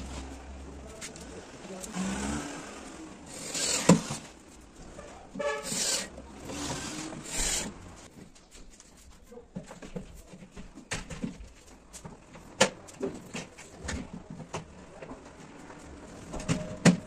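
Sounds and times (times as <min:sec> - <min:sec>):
drill driving screws: 0:03.3 - 0:04.2, 0:05.6 - 0:07.8.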